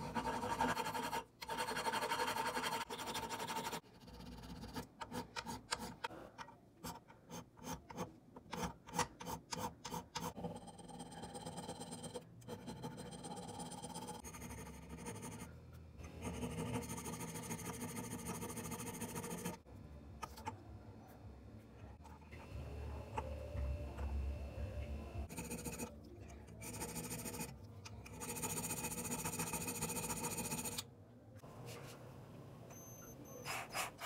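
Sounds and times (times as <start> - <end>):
hand file rubbing: 33.2 - 34.0.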